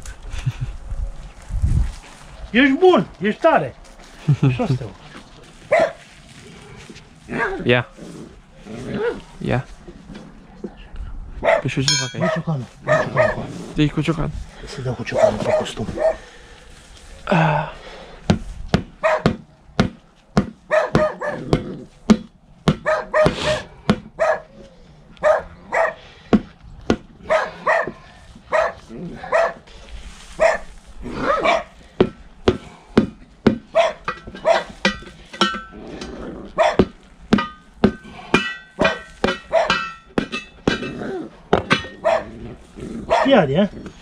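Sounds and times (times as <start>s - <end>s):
dog barking: 5.7s - 6.0s, 11.4s - 13.4s, 15.1s - 16.2s, 19.0s - 19.4s, 20.7s - 21.6s, 22.8s - 24.6s, 25.2s - 26.0s, 27.2s - 29.6s, 30.4s - 31.7s, 33.7s - 34.8s, 36.6s - 36.9s, 38.8s - 39.8s, 42.0s - 42.4s, 43.1s - 43.4s
hammer ringing on steel rim: 11.9s - 12.4s, 37.3s - 41.0s.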